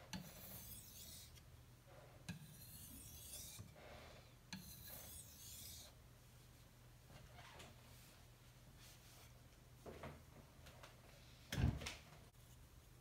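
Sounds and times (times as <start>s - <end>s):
knife scraping on whetstone: 0.0s - 1.4s, 2.3s - 3.8s, 4.5s - 6.0s.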